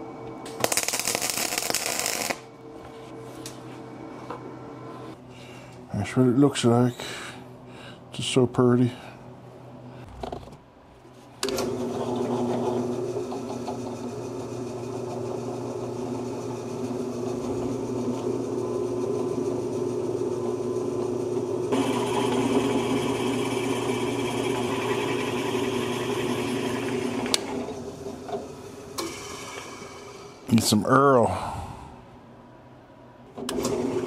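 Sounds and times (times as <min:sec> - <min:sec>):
drill press drilling steel: 0:11.4 - 0:27.9.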